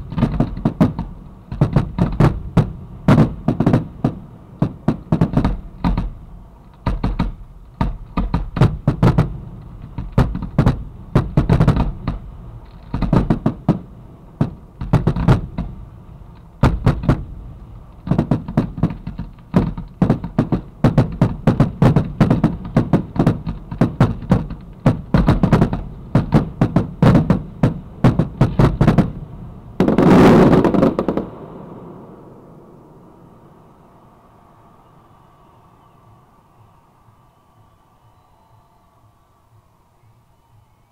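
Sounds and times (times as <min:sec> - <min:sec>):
fireworks bangs: 0:00.0 - 0:34.1
rushing firework burst: 0:08.6 - 0:34.4.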